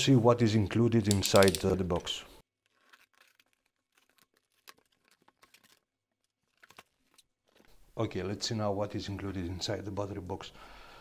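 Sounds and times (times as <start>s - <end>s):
cardboard crackling: 2.5s - 7.7s.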